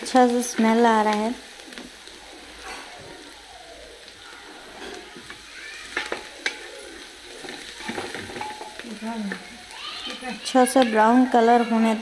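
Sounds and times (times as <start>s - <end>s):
onions sizzling in oil: 0.0s - 12.0s
wooden spatula stirring: 4.8s - 11.0s.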